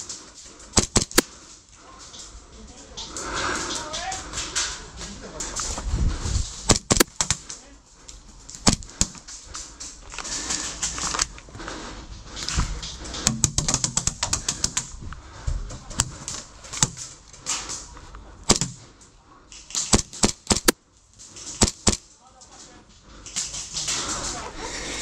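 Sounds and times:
airsoft pistol shots: 0.8 - 1.2, 19.8 - 20.8.

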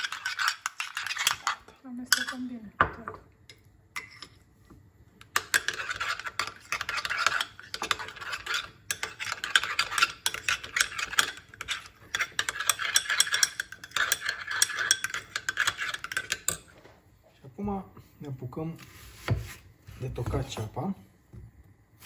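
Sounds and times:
utensil scraping in a bowl: 0.0 - 2.7, 3.6 - 4.6, 5.2 - 16.8, 18.8 - 20.7.

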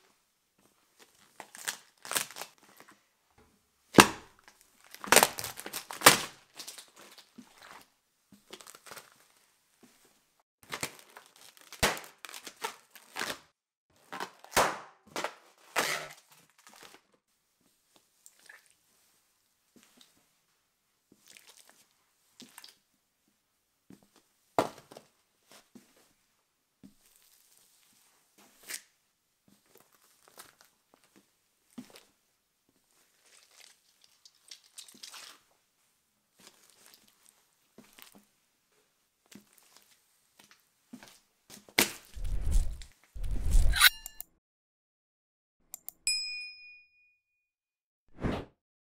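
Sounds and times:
shoe squishing jelly: 33.2 - 35.4
ringing bell ding: 46.1 - 47.3
short chime: 46.1 - 47.4.

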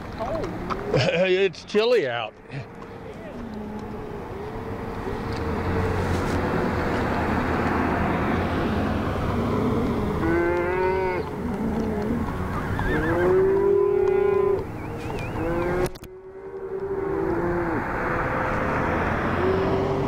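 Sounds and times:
car tyres passing on highway: 0.0 - 20.0
cattle mooing: 2.5 - 4.8, 9.1 - 18.3.

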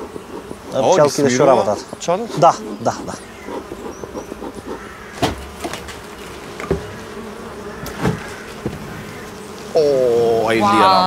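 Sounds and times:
honeybees buzzing: 0.0 - 11.0
sharp knocks: 4.4 - 7.1, 7.8 - 9.0.

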